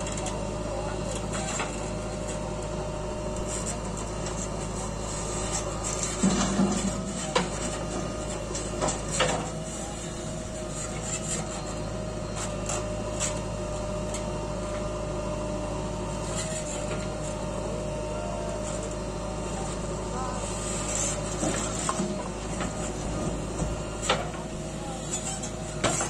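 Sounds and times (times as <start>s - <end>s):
diesel engine humming: 0.0s - 26.0s.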